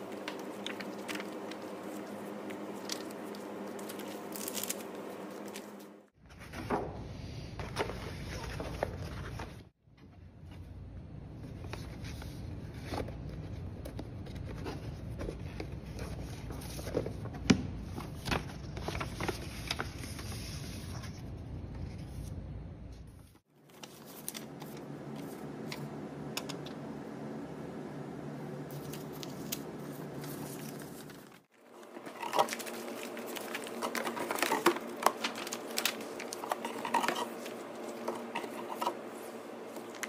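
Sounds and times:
paper and box handling: 0.0s - 6.9s, 7.6s - 9.6s, 11.5s - 22.3s, 28.7s - 40.0s
room noise: 0.0s - 40.0s.

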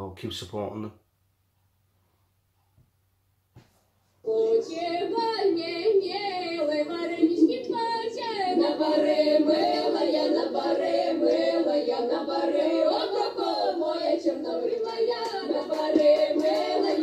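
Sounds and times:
women singing a cappella: 4.2s - 17.0s.

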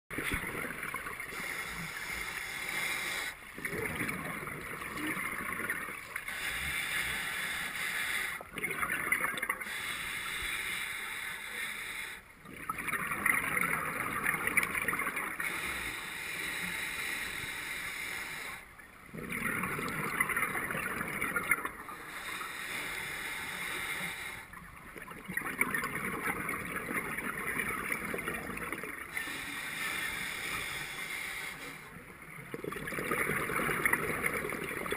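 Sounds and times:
quiet regulator inhales: 1.2s - 3.5s, 6.1s - 8.5s, 9.6s - 12.4s, 15.4s - 18.8s, 21.7s - 24.6s, 29.0s - 32.1s.

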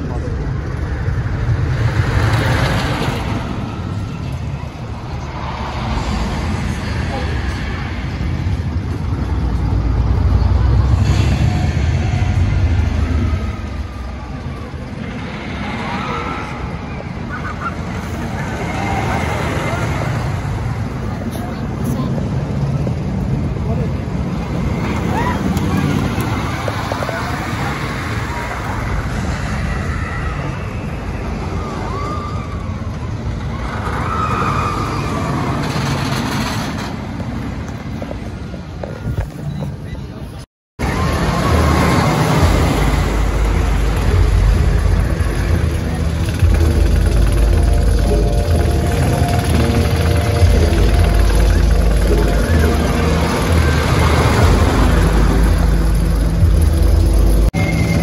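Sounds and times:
roller coaster rumbling on track: 0.0s - 58.0s
riders screaming: 24.7s - 36.0s.

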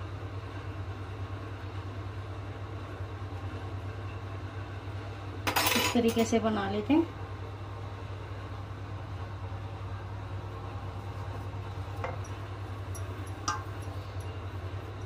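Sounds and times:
steady low hum: 0.0s - 15.0s
kitchenware clinking: 5.5s - 6.3s, 12.0s - 14.3s.

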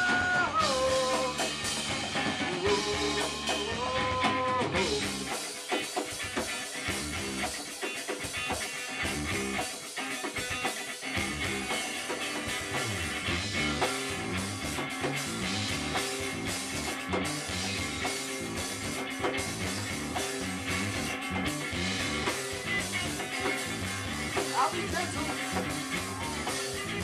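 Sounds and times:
drum kit: 0.0s - 27.0s
electric bass: 0.0s - 27.0s
electric guitar: 0.0s - 27.0s.

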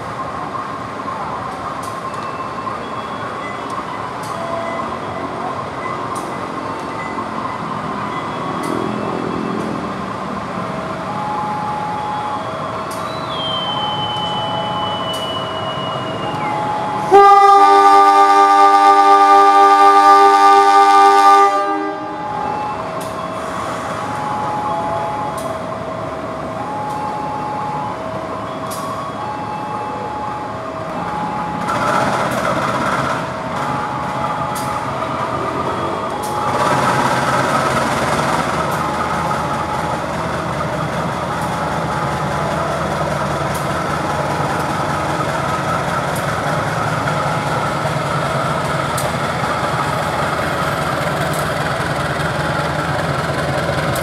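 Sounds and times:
diesel locomotive engine throttling up: 0.0s - 21.2s, 22.2s - 54.0s
electronic two-tone alarm beeps: 11.0s - 17.2s.

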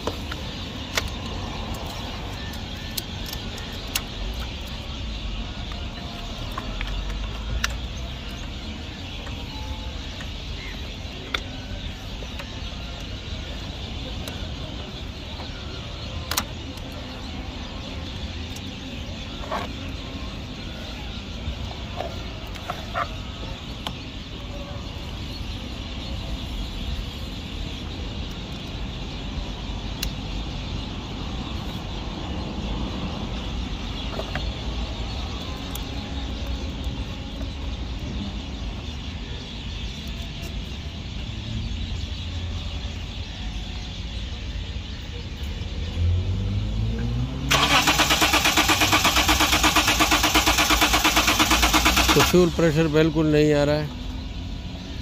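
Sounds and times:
car engine cranking: 47.5s - 52.6s
starter motor hum: 47.5s - 52.6s.

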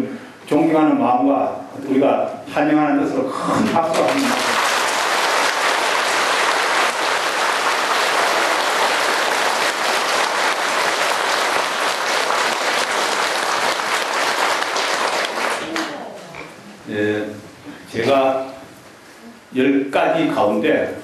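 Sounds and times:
audience applauding: 3.7s - 16.0s.

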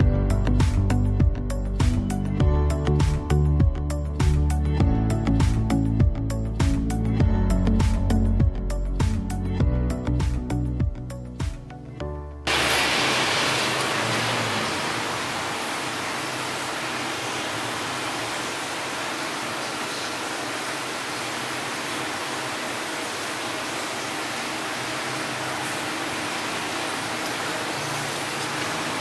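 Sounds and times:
background music: 0.0s - 12.5s
steady hiss: 12.5s - 29.0s.

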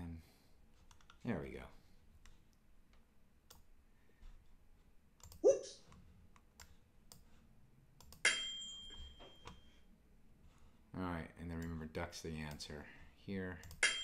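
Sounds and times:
computer mouse clicks: 0.8s - 1.2s, 2.2s - 3.7s, 5.2s - 7.4s, 8.0s - 8.2s
ringing chime: 8.2s - 9.8s.

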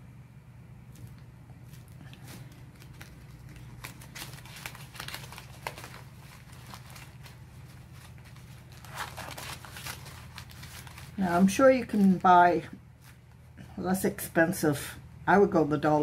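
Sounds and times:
paper crumpling: 0.9s - 13.4s.

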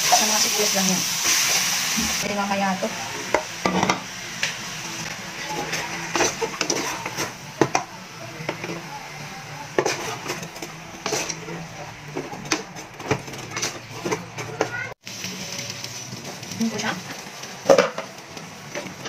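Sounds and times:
wooden spatula scraping a pot: 5.1s - 7.8s, 9.7s - 14.7s.

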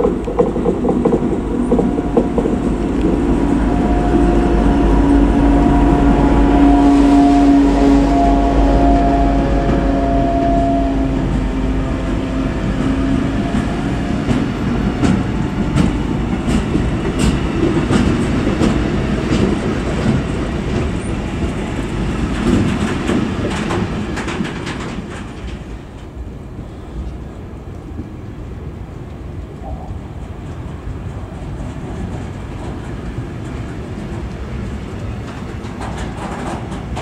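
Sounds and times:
diesel locomotive hum: 0.0s - 37.0s
train wheels rumbling and clicking: 0.0s - 37.0s.

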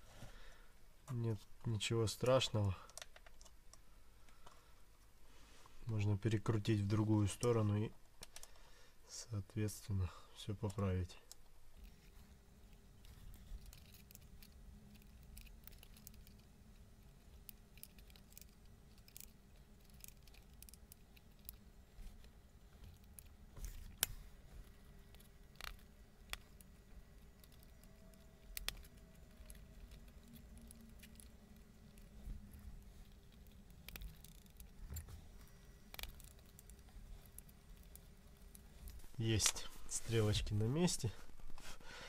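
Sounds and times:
faint steady hum: 0.0s - 42.0s
small clicks and taps: 2.8s - 4.6s, 8.1s - 8.6s, 17.1s - 39.6s.

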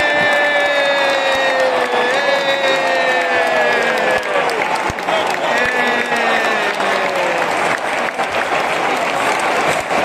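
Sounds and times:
loud crowd noise: 0.0s - 10.0s
scattered claps: 0.0s - 10.0s.

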